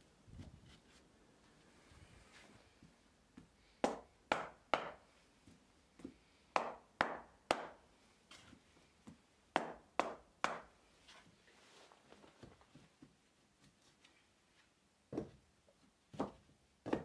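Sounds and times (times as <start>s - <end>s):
wooden mallet knocking wood blocks: 3.8s - 5.0s, 6.6s - 7.8s.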